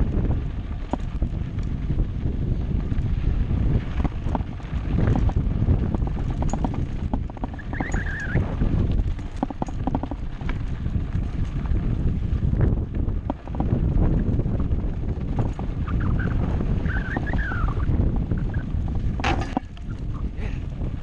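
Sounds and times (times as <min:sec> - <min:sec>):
bike rattling and knocking: 0:00.0 - 0:21.0
wind buffeting microphone: 0:00.0 - 0:21.0
short wavering squeal: 0:07.6 - 0:08.4.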